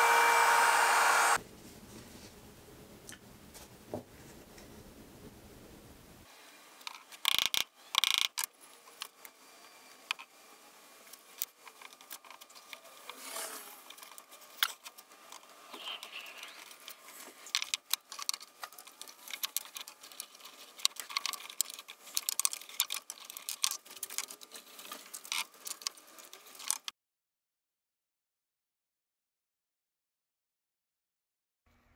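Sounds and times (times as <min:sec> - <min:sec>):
wooden parts clicking and knocking: 0:16.5 - 0:26.9.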